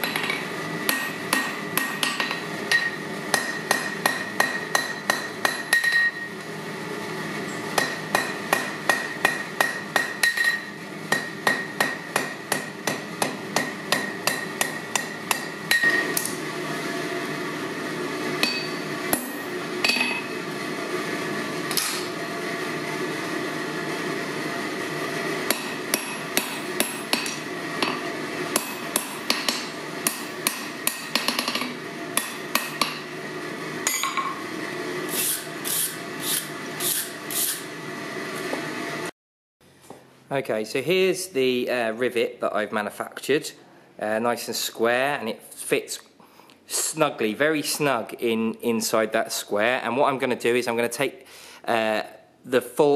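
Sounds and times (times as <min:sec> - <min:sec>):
hammer striking ringing anvil: 0:00.0 - 0:06.3, 0:07.8 - 0:16.3, 0:18.4 - 0:20.3, 0:25.5 - 0:28.0, 0:28.6 - 0:33.1, 0:33.9 - 0:34.4
steady hum: 0:00.0 - 0:39.1.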